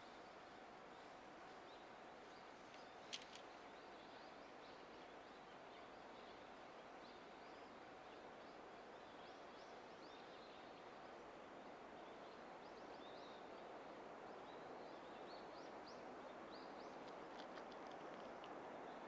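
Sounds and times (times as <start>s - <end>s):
faint outdoor hiss: 0.0s - 19.0s.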